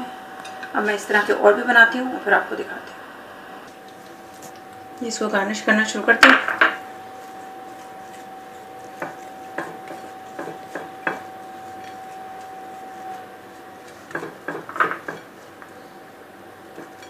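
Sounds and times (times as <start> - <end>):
faint steady hum: 0.0 - 17.0
dishes and utensils clinking: 13.8 - 15.5, 16.7 - 17.0.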